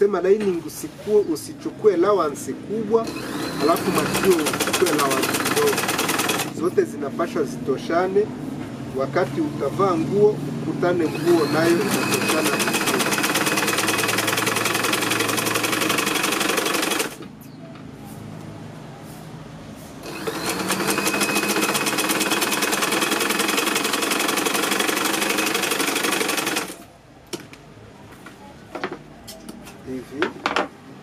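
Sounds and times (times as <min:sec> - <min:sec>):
sewing machine stitching: 0:03.0 - 0:06.6, 0:11.0 - 0:17.2, 0:20.0 - 0:26.9.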